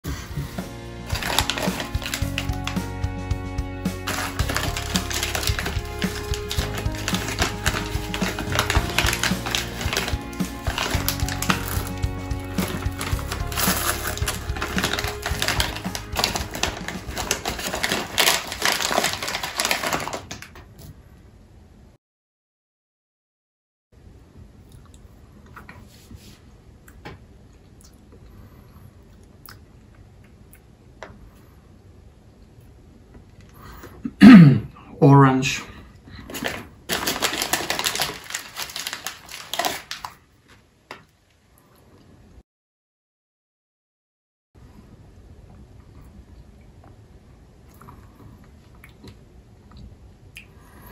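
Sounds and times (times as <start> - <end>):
candies rattling: 1.0 - 2.8, 4.0 - 20.6, 36.3 - 40.2
plastic bag crinkling: 1.0 - 2.9, 4.0 - 20.8, 36.2 - 40.3.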